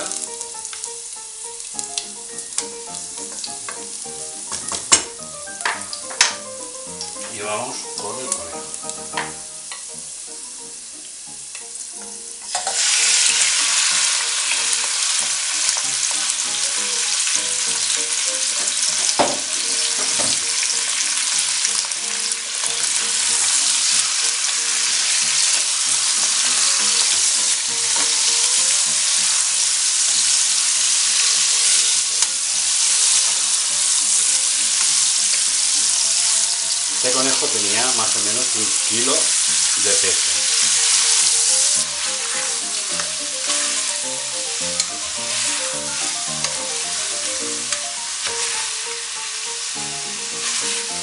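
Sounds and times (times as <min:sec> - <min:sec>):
meat sizzling in hot oil: 0:00.0 - 0:51.0
spatula knocking on pot: 0:09.0 - 0:09.9.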